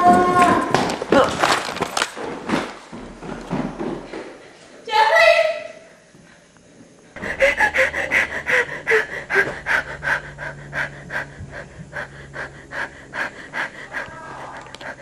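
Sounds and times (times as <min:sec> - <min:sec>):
person panting: 0:07.2 - 0:15.0
person whimpering: 0:07.2 - 0:15.0.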